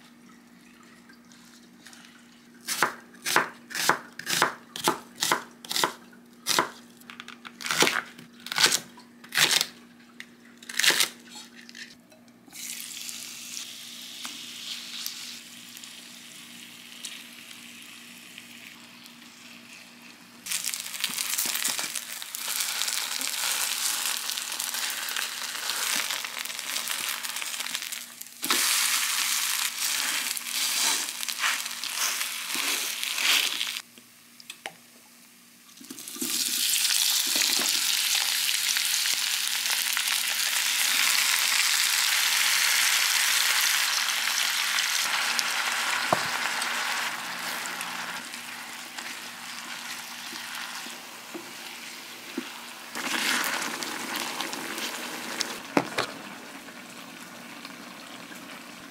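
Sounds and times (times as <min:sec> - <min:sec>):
vegetables sizzling in frying pan: 0:12.6 - 0:33.8, 0:36.3 - 0:58.8.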